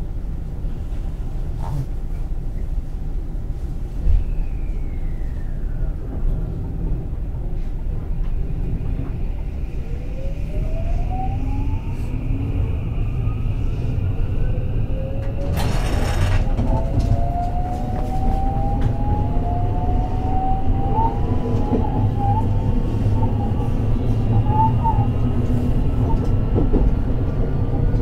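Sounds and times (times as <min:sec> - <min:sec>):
wheels rumbling on rail: 0:00.0 - 0:28.0.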